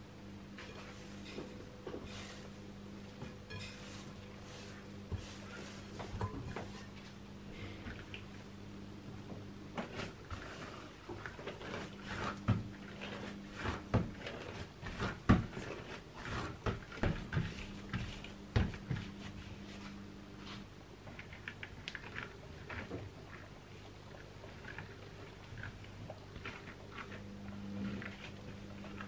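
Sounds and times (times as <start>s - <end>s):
hands patting dough: 9.2s - 23.6s.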